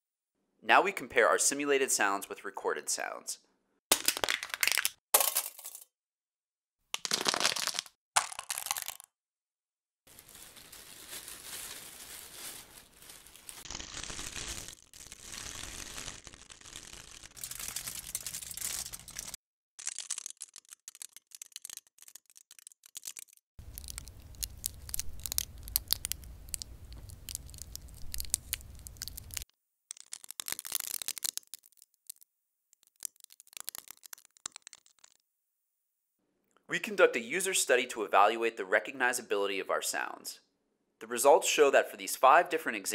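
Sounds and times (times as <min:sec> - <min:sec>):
cellophane wrappers crumpling: 0:07.0 - 0:09.0, 0:10.1 - 0:32.2, 0:32.8 - 0:35.2
aluminium foil crumpling: 0:10.1 - 0:32.2, 0:32.8 - 0:35.2
plastic bag crumpling: 0:10.1 - 0:32.2.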